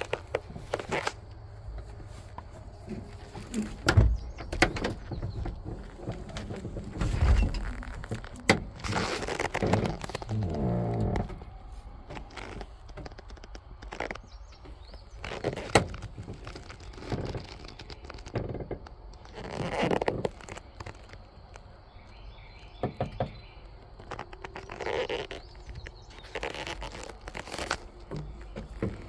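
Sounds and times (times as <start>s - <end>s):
clicks knocks and rustles: 0.0s - 11.5s.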